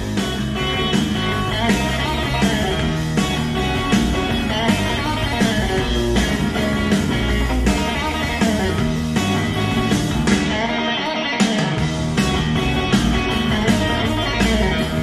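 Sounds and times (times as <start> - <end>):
guitar-led rock music: 0.0 - 15.0.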